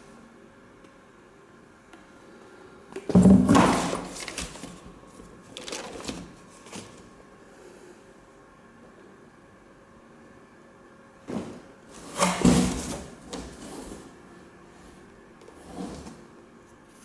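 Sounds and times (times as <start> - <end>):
shoes thumping into cardboard box: 3.1 - 4.2.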